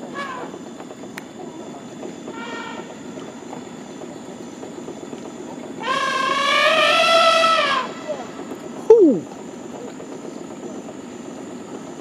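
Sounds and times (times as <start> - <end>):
elephants trumpeting: 5.8 - 9.3.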